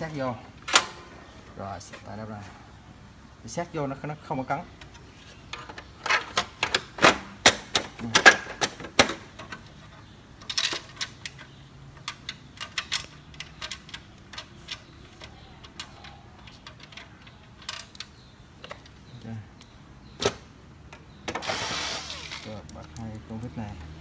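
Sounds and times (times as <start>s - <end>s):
plastic parts clicking and snapping: 4.8s - 21.5s.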